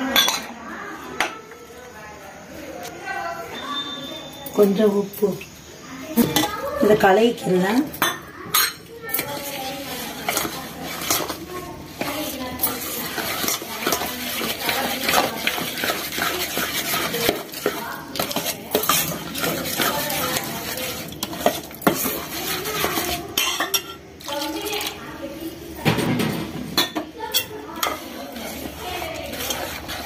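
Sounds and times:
spoon stirring and scraping pot: 6.2s - 30.0s
spoon clinking against pot: 7.9s - 9.5s, 12.0s - 24.0s.

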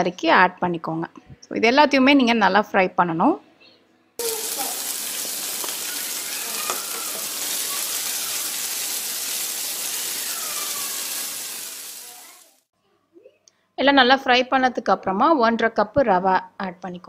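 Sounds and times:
hot oil sizzling in a pan: 4.2s - 12.7s.

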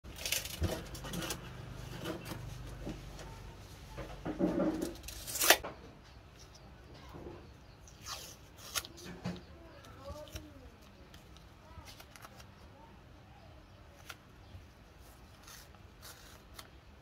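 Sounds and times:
knocks scrapes and rustles: 0.2s - 5.7s.

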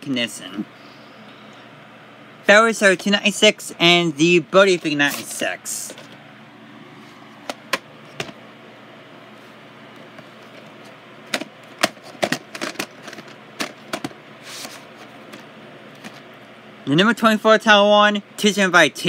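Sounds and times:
steady background noise: 0.0s - 19.0s
plastic cassette cases clicking: 11.3s - 15.4s.

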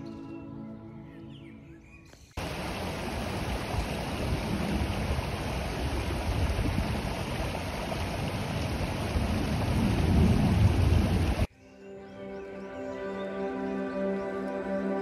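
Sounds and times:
stream splashing over stones: 2.4s - 11.5s.

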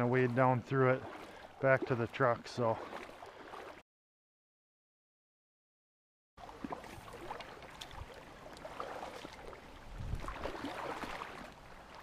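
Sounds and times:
stream water rippling: 0.0s - 3.8s, 6.4s - 12.0s.

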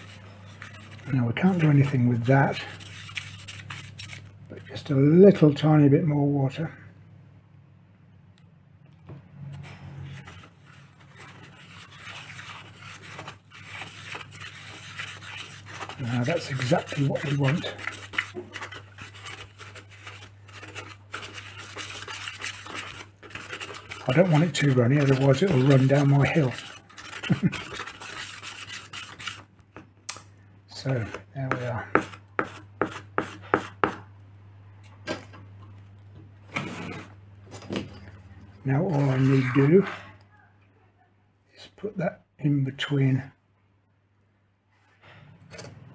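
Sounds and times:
gritty scraping in plastic pot: 0.0s - 4.4s, 10.0s - 29.5s, 30.8s - 34.0s, 36.5s - 37.7s, 38.6s - 40.1s.

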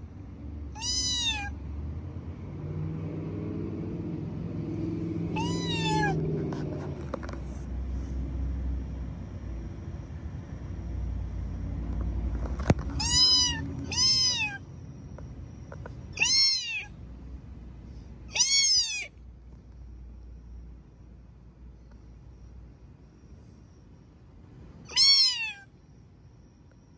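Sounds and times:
cat meowing: 0.7s - 1.6s, 5.3s - 6.4s, 12.8s - 14.6s, 16.1s - 17.0s, 18.3s - 19.2s, 24.9s - 25.7s.

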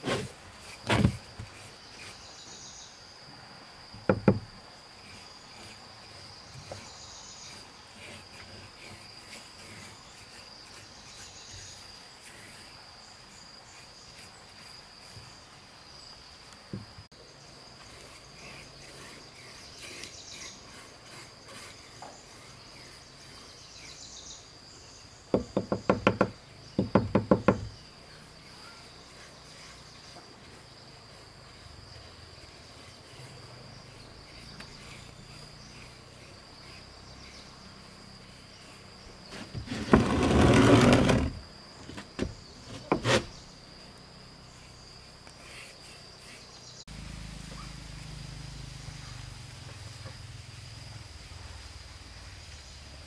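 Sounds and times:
insects chirring: 0.0s - 53.0s
wood knocking: 0.8s - 1.5s, 4.0s - 4.5s, 25.3s - 27.8s, 39.3s - 43.3s.

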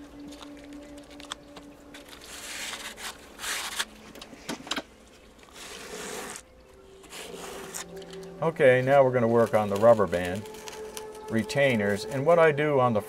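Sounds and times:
paper towel scraping foam: 2.1s - 4.0s, 5.5s - 6.4s, 7.0s - 8.2s.

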